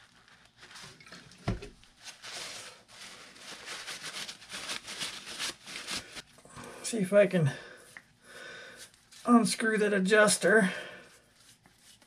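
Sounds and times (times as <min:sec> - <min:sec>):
paper towel rubbing and rustling: 0:00.0 - 0:06.3, 0:11.1 - 0:12.0.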